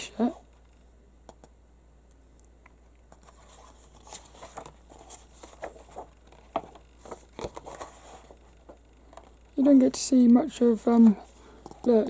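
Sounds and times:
comic book pages rustling: 3.1s - 9.4s, 10.8s - 12.0s.

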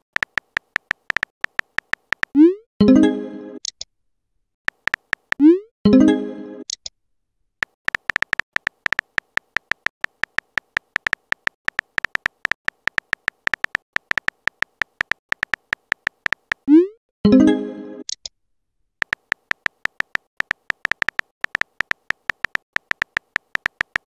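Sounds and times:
electronic key-tap clicks: 0.1s - 2.4s, 4.7s - 5.5s, 7.6s - 16.7s, 19.0s - 24.0s
message chime: 17.3s - 18.0s.

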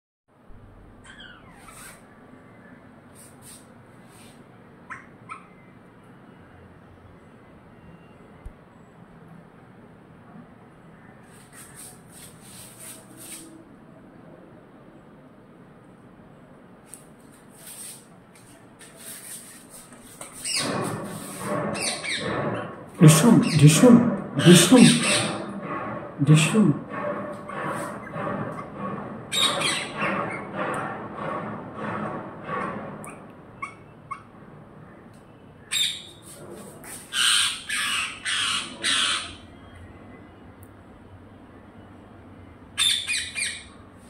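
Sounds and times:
parrots squawking: 1.0s - 2.2s, 20.4s - 25.6s, 29.3s - 30.5s, 35.7s - 36.2s, 37.1s - 39.4s, 42.8s - 43.8s
faint scratching and rustling: 17.2s - 22.0s.

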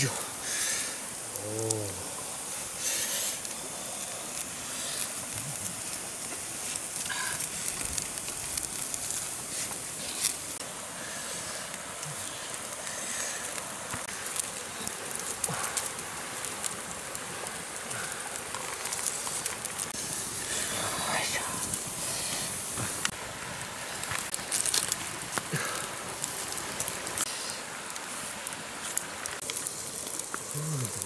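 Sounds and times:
campfire crackling: 0.0s - 31.0s
fire popping sharply: 0.0s - 31.0s
river rushing: 0.0s - 31.0s.

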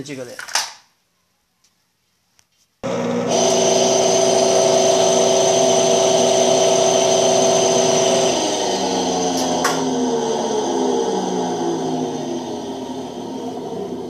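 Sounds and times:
washing machine motor whining: 2.8s - 14.0s.

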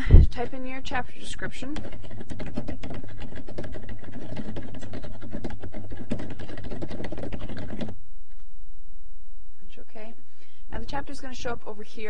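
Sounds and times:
rapid typing on keyboard: 1.6s - 8.0s.

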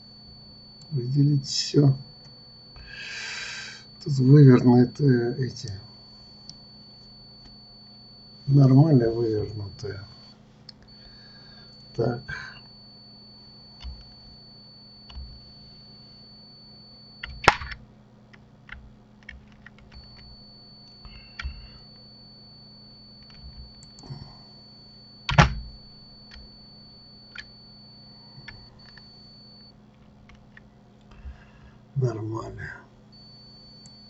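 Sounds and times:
faint high whine: 0.0s - 34.0s
low hum: 0.0s - 34.0s
keyboard and mouse clicks: 17.2s - 20.3s, 29.9s - 31.3s.

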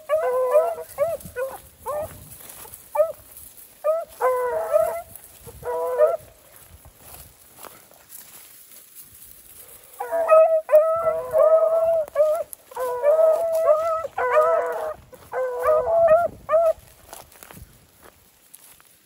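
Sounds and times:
puppies baying: 0.0s - 6.4s, 9.9s - 16.9s.

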